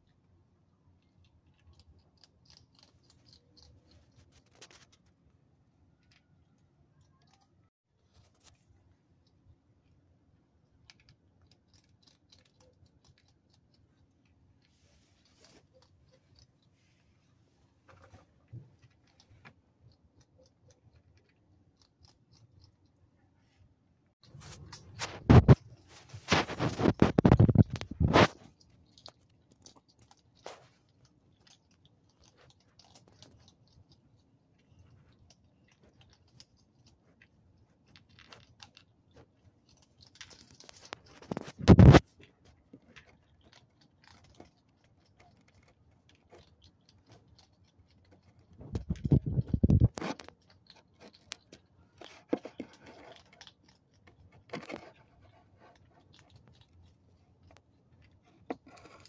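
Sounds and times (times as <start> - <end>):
close crunching and scraping: 1.7 - 5.3, 24.2 - 33.8, 34.6 - 59.0.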